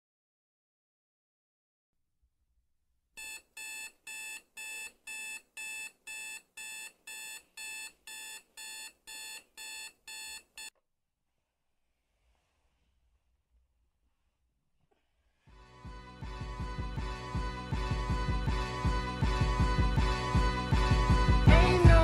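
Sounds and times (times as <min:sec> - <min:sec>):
alarm clock beeping: 0:03.2 - 0:10.7.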